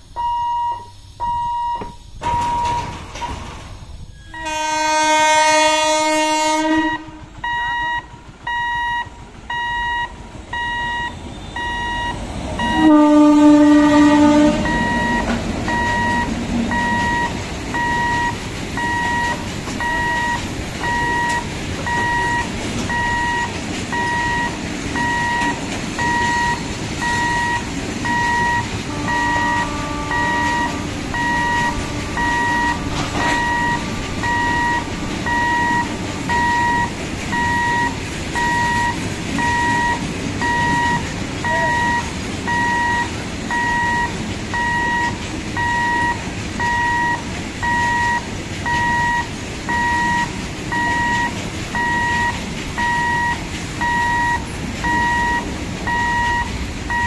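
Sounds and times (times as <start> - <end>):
freight train rumbling past: 0.0 - 57.0
level crossing warning beeper: 0.1 - 3.4, 4.2 - 57.0
faint train horn: 4.1 - 7.5, 12.6 - 15.3, 28.8 - 36.8
locomotive horn blasting: 4.2 - 7.6, 12.6 - 20.0, 27.0 - 39.8.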